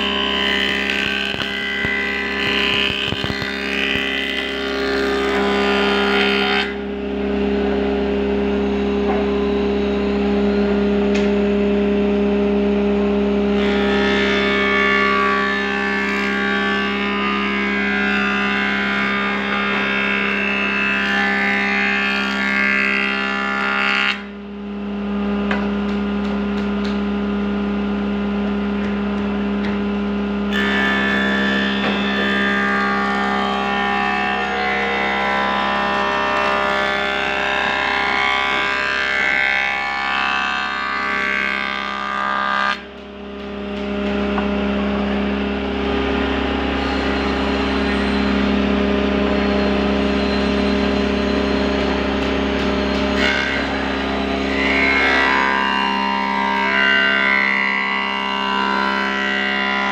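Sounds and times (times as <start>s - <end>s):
cutterhead planing board: 0.0s - 59.9s
jointer motor hum: 0.0s - 59.9s.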